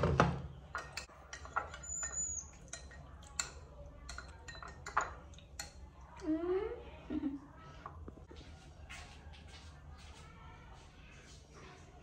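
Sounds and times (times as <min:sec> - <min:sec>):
spoon clinking in ceramic bowl: 0:00.7 - 0:05.9.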